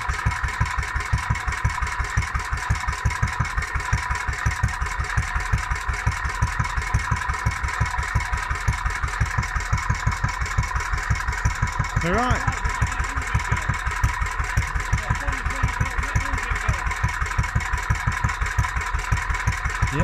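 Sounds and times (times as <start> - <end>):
stationary engine running: 0.0 - 20.0
high hum: 12.0 - 17.1.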